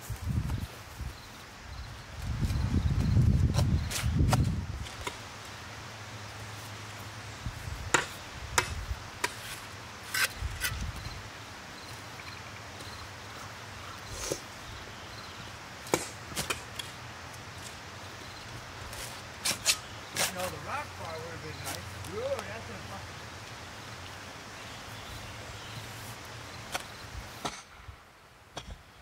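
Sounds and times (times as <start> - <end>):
spades chopping into turf and soil: 15.8 - 17.0, 19.0 - 20.5, 26.7 - 27.8.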